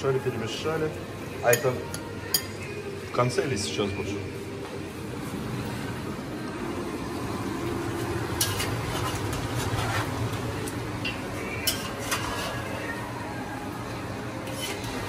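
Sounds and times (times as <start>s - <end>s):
steady low hum: 0.9s - 15.0s
spoon clinking against pot: 1.5s - 2.7s, 11.0s - 12.5s.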